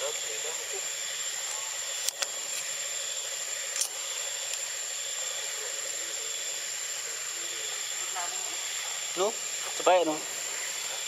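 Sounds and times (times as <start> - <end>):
forest background hiss: 0.0 - 11.0.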